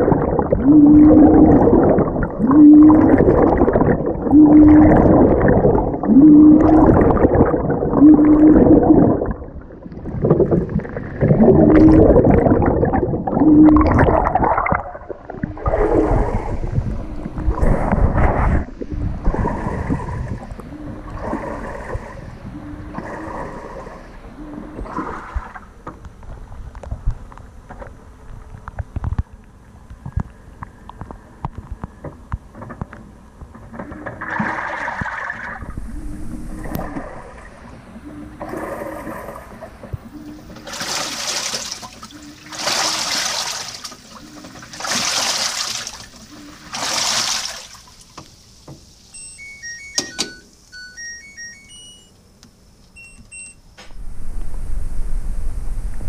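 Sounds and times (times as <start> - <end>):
washing machine water sloshing: 33.8 - 35.8, 38.4 - 48.3
washer electronic beep tune: 49.1 - 52.2, 53.0 - 53.6.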